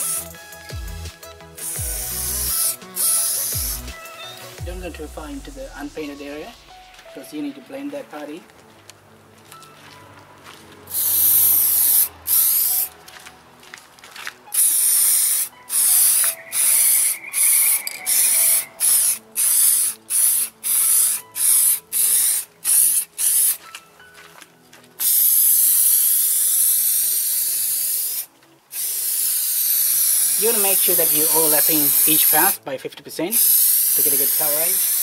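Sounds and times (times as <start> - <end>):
aerosol spray can hissing: 0.0 - 0.4, 1.6 - 4.6, 10.9 - 12.9, 14.5 - 23.6, 25.0 - 32.6, 33.3 - 35.0.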